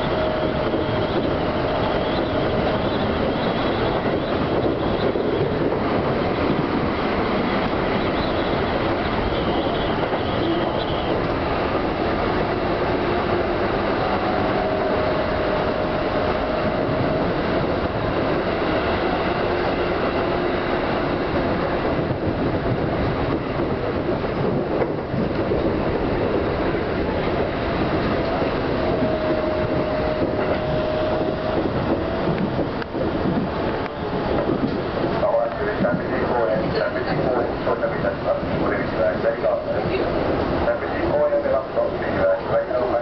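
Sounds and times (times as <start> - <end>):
train wheels rumbling on rail: 0.0 - 43.0.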